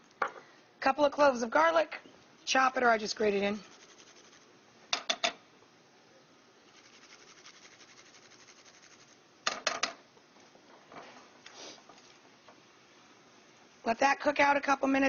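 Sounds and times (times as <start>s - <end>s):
garlic scraping on grater: 3.6s - 4.5s, 6.7s - 9.2s.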